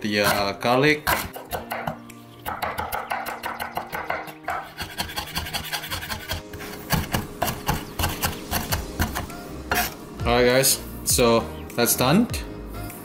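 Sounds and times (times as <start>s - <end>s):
knife chopping on wooden board: 0.2s - 10.0s.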